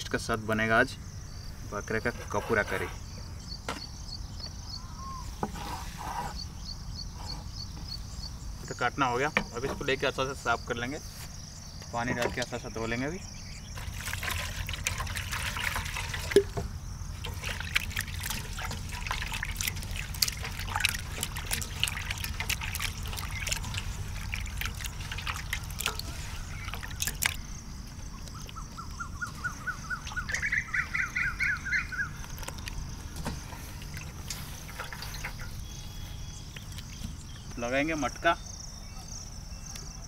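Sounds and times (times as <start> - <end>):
water splashing in a steel bowl: 13.8 - 27.6, 30.0 - 30.5, 33.7 - 35.5.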